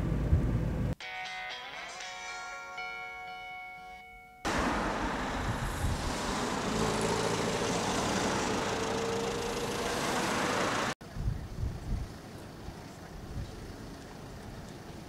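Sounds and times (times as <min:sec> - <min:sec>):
car engine accelerating: 0:04.5 - 0:11.0
road noise inside car: 0:04.5 - 0:11.0.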